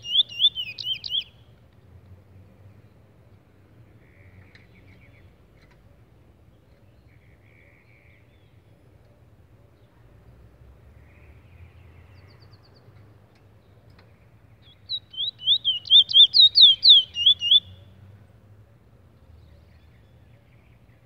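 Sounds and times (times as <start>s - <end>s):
finch whistling song: 0.0s - 1.5s, 14.6s - 18.0s.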